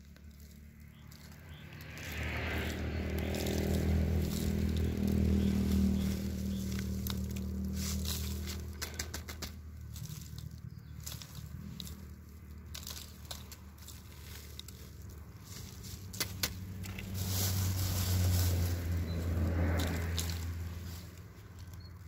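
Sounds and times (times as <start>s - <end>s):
soil trickling into plastic bag: 0.0s - 8.9s
plastic crackling: 0.0s - 17.2s.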